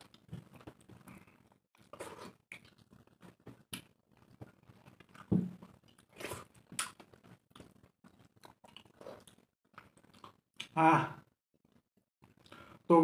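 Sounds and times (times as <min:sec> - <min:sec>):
wet chewing and lip smacks: 0:05.9 - 0:10.7.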